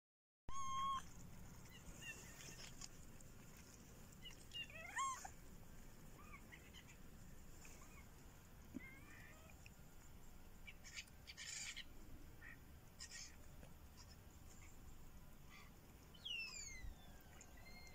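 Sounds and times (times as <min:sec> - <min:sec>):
kitten meowing: 0:00.5 - 0:01.0.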